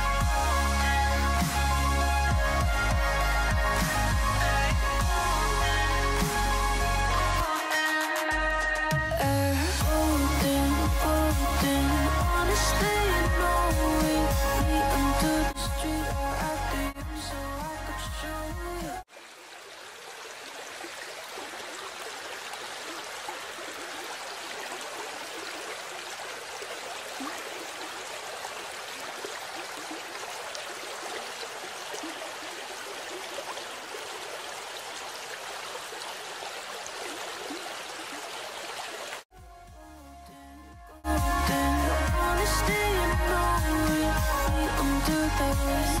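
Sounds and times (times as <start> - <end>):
music: 0.0 - 19.1, 39.3 - 46.0.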